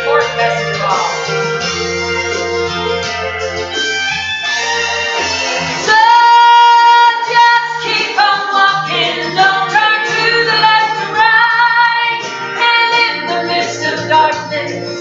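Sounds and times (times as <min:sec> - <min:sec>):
instrumental accompaniment: 0:00.0 - 0:15.0
woman singing: 0:05.9 - 0:14.9.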